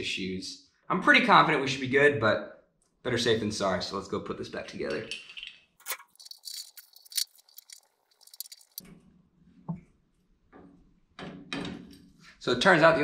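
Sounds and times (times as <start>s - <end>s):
metal parts clinking: 5.2s - 8.8s.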